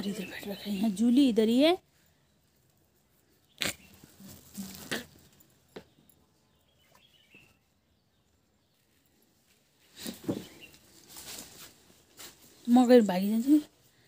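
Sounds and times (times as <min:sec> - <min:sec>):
faint bird chirps: 0:03.3 - 0:09.2.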